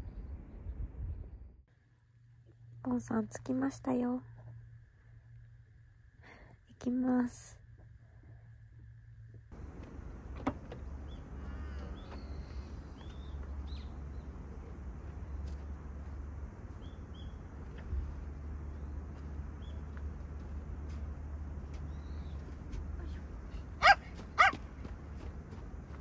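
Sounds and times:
steady low rumble: 0.0 - 26.0
small birds chirping: 9.6 - 20.6, 21.6 - 25.6.

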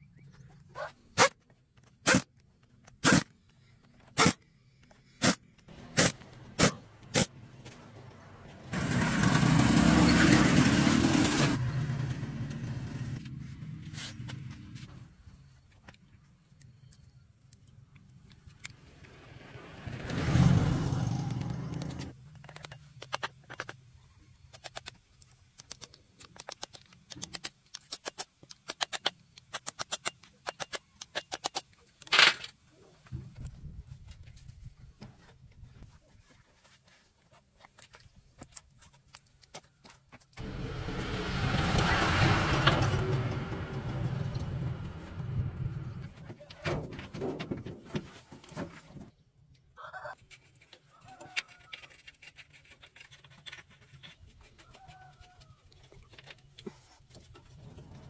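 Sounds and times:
pneumatic impact wrench bursts: 5.2 - 7.3.

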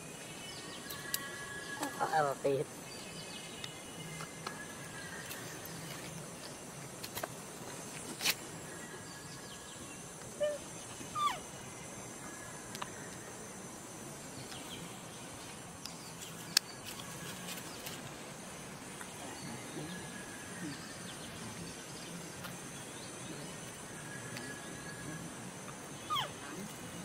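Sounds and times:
steady forest hiss: 0.0 - 27.0
distant small animal calls: 10.3 - 11.5, 26.0 - 26.8.

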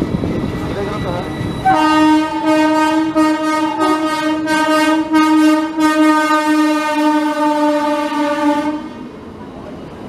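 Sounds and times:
locomotive horn long note: 1.6 - 9.0.

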